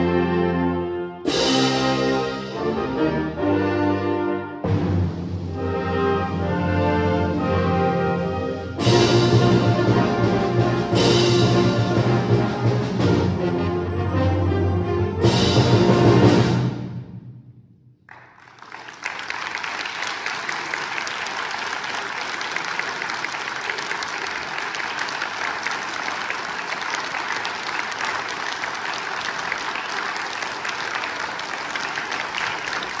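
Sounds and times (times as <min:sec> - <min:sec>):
audience applause: 0:18.1 - 0:33.0.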